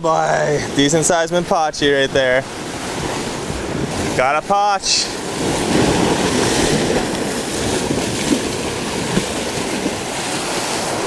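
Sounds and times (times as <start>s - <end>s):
ocean surf washing ashore: 0.0s - 11.0s.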